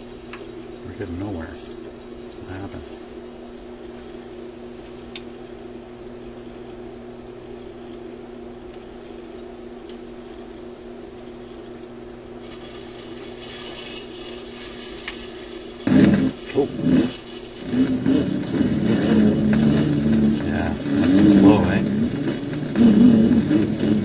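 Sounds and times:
amplifier mains hum and hiss: 0.0 - 24.0
bright hiss: 12.4 - 17.6.

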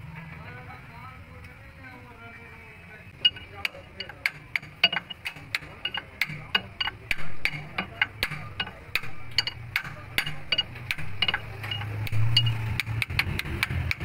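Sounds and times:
hammer tapping on metal: 3.2 - 14.0.

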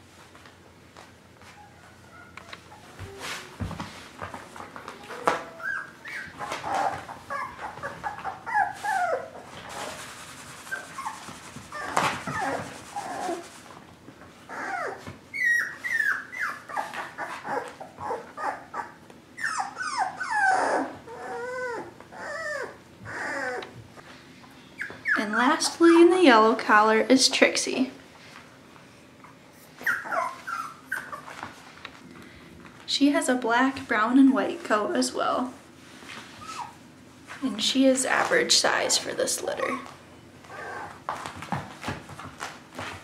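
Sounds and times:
puppies whining and yipping: 1.4 - 3.7, 4.6 - 9.9, 10.6 - 13.5, 14.4 - 23.8, 24.7 - 25.9, 29.2 - 31.6, 36.3 - 36.8, 39.6 - 41.3.

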